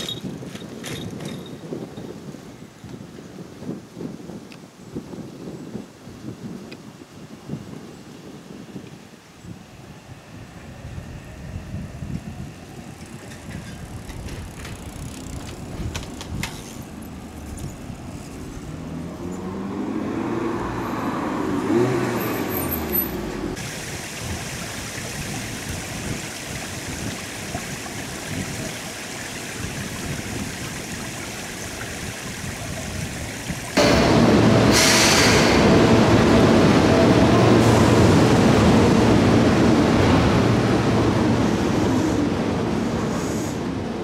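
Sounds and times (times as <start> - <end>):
train wheels rumbling: 10.7 - 19.6, 33.8 - 44.0
high squeal: 33.8 - 35.9.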